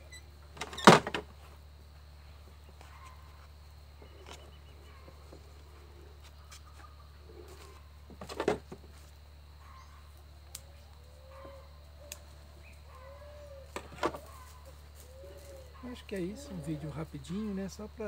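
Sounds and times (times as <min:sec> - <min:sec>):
dove cooing: 0:09.6 - 0:17.5.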